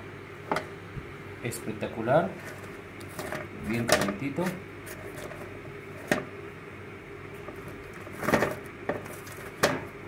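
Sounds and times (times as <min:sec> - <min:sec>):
pastry rustling: 0:02.3 - 0:06.3, 0:07.3 - 0:10.0
knocks on metal baking tray: 0:09.6 - 0:09.9.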